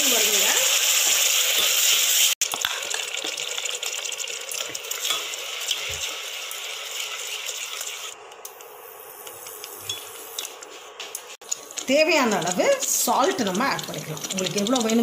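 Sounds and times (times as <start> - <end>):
paste sizzling in oil: 0.0 - 15.0
spoon clinking and scraping metal pot: 5.0 - 6.0, 9.8 - 15.0.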